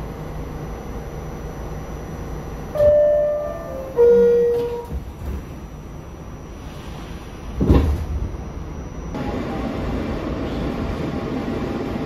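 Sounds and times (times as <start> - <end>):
subway doors sliding shut: 2.6 - 12.0
two-note door chime: 2.8 - 4.9.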